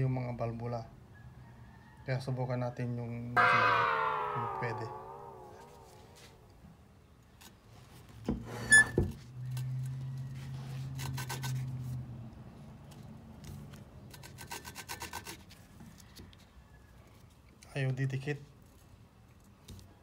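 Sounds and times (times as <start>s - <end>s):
sharp knock: 3.4s - 6.4s.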